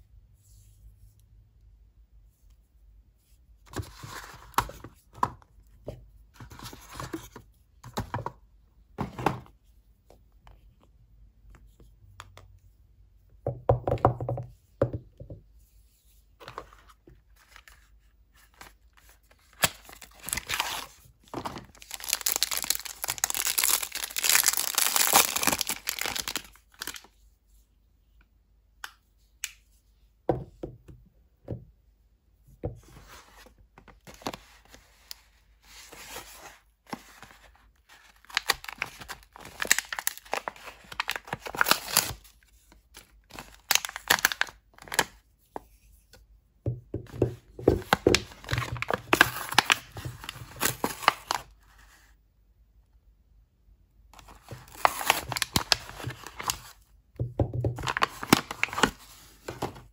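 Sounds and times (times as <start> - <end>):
plastic wrap crinkling: 19.6 - 27.1, 38.1 - 42.2, 43.3 - 45.1, 54.3 - 56.8, 57.8 - 59.7.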